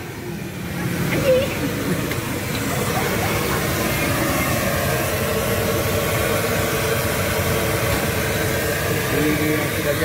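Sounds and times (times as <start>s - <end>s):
chicken deep-frying in oil: 2.3s - 10.0s.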